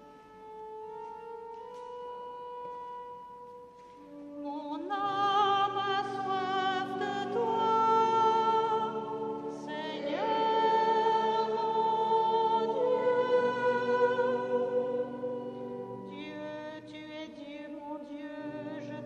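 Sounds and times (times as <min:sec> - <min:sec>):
sustained accompaniment chords: 0:00.0 - 0:19.0
woman singing with vibrato: 0:04.3 - 0:19.0.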